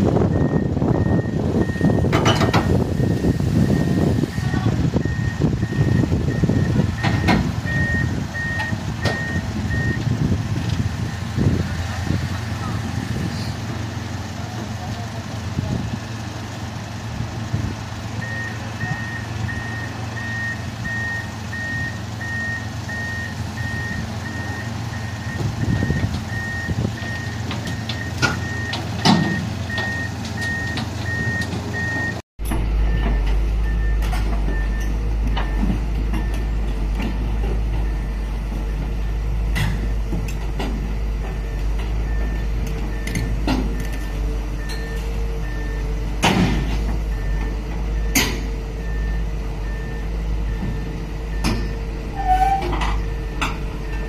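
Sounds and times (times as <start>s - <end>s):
diesel engine running: 0.0s - 54.0s
backup alarm beeping: 0.3s - 10.0s.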